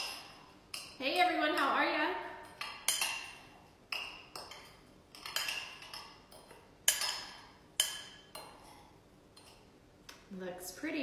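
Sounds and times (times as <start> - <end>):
utensil clinking against bowl: 2.4 - 9.6.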